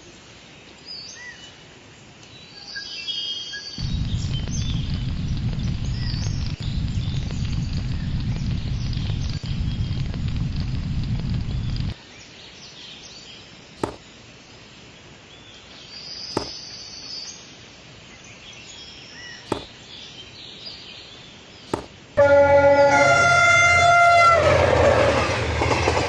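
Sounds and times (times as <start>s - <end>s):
low rumble: 3.8s - 12.0s
sharp clicks: 3.8s - 12.0s, 19.5s - 19.8s
loud train horn: 22.2s - 25.8s.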